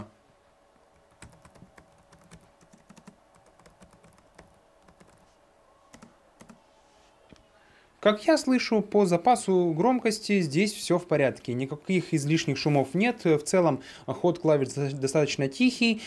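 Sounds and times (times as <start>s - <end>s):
laptop keyboard typing: 1.0s - 6.6s.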